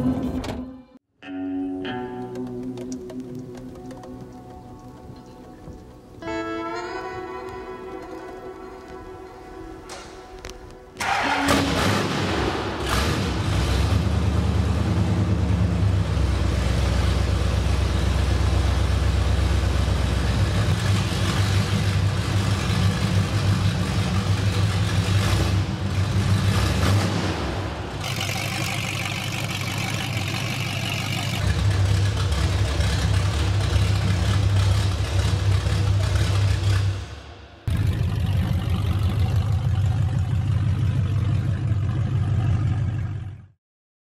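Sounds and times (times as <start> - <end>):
car engine running: 12.8 - 43.5.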